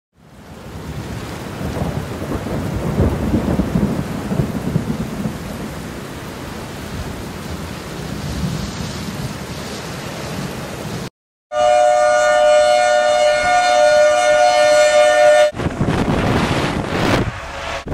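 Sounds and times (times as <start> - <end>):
heavy rain: 0.2 - 17.9
low rolling thunder: 0.6 - 9.5, 15.4 - 17.9.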